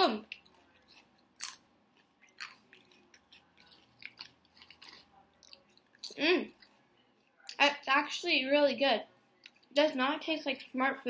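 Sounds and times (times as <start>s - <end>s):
potato chips crunching: 0.2s - 6.8s.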